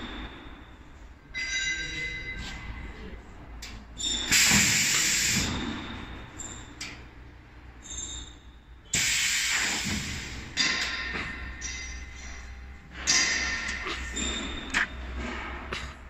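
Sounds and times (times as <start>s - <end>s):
compressed air hissing: 4.3s - 5.6s, 8.9s - 10.5s.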